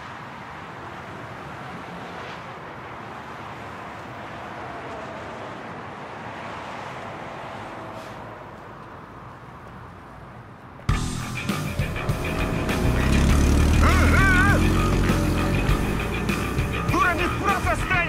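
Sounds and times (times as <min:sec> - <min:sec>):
road traffic rushing: 0:00.0 - 0:18.0.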